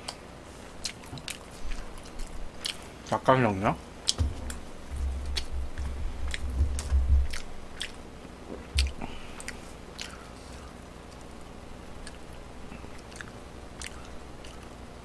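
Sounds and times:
chewing with wet clicks: 0:00.0 - 0:00.2, 0:00.8 - 0:03.2, 0:05.3 - 0:10.3, 0:12.0 - 0:14.8
low bumps: 0:04.1 - 0:07.7.

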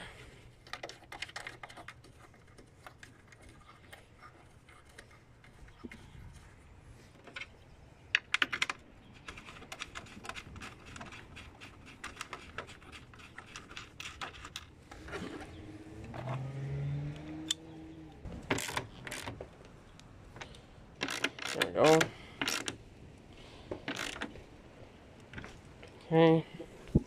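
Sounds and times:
ratchet clicking: 0:21.0 - 0:22.7, 0:23.9 - 0:24.3.

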